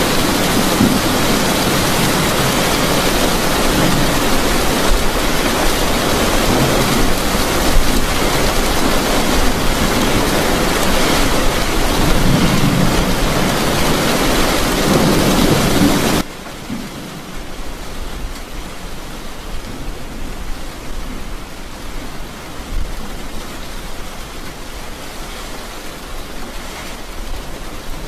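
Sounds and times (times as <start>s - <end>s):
heavy rain on car roof: 0.0s - 28.0s.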